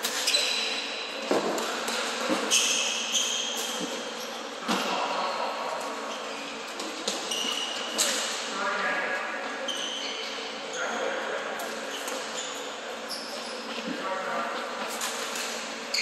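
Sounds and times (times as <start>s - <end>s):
sneakers squeaking: 0.0s - 16.0s.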